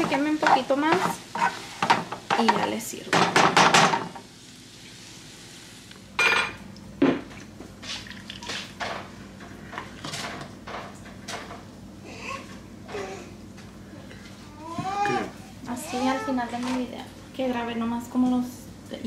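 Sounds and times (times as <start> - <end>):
tableware clinking: 6.2 - 6.6.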